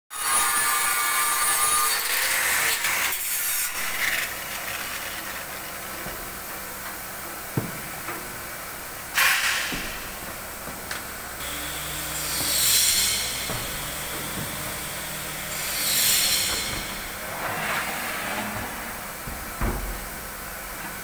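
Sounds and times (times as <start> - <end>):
scraping hissing workshop noise: 0.1 - 21.0
sharp knock: 11.8 - 17.2.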